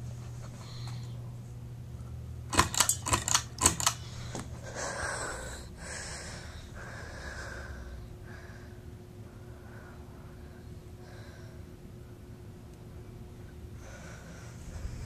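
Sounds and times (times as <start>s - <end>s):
ceiling fan running: 0.0s - 15.0s
pull-chain switch clicks: 2.5s - 4.0s.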